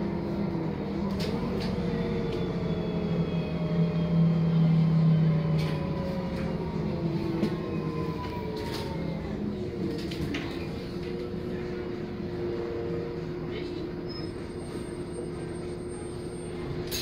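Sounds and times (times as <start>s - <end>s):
bus drivetrain hum with whine: 0.0s - 17.0s.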